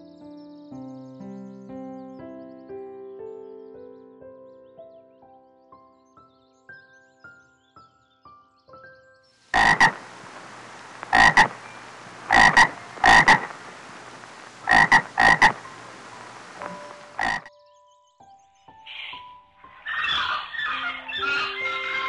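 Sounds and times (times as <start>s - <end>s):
steady hiss: 9.5s - 17.5s
frogs croaking: 9.5s - 17.6s.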